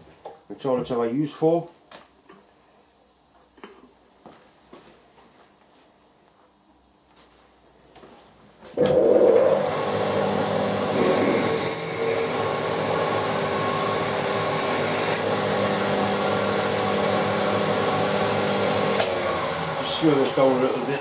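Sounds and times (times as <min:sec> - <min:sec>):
high steady whine: 0:08.8 - 0:11.3
milling machine drilling metal: 0:08.9 - 0:15.3.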